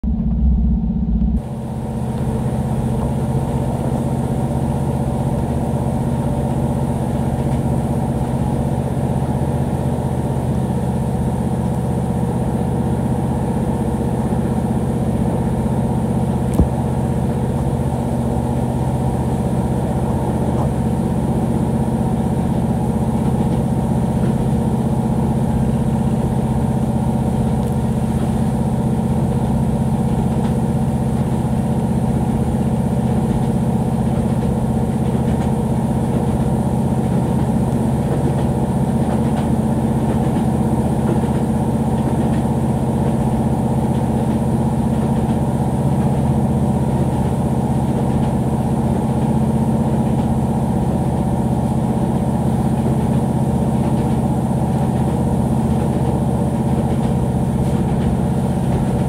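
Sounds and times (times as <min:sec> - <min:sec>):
engine humming: 0:00.0 - 0:06.7.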